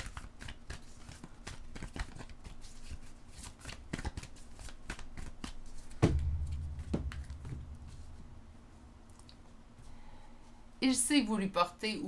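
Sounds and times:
cards being shuffled: 0.0 - 6.0
loud thump: 6.0 - 9.0.

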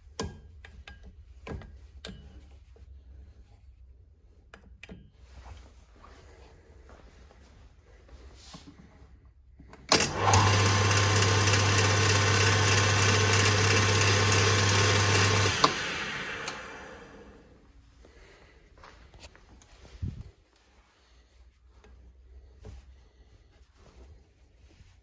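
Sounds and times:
lathe motor humming: 10.0 - 17.5.

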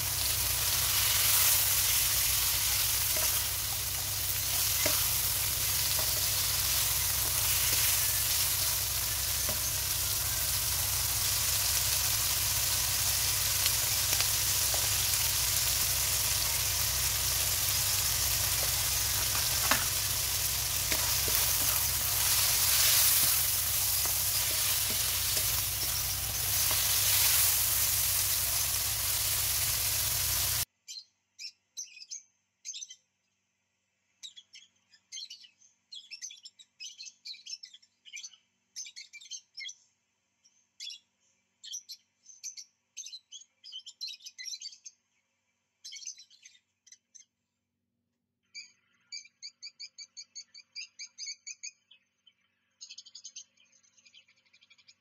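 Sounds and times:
food sizzling in a wok: 0.0 - 30.7
spatula tapping and scraping pan: 0.9 - 10.0, 13.6 - 30.2.

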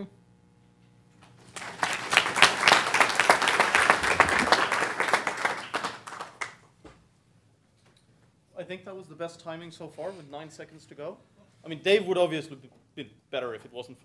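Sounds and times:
audience applauding: 1.5 - 6.6.

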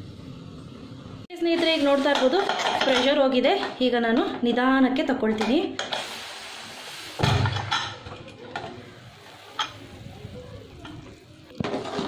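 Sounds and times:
metal lid clattering and scraping: 1.6 - 4.3, 11.6 - 12.0
pressure cooker valve hiss: 5.8 - 7.2.

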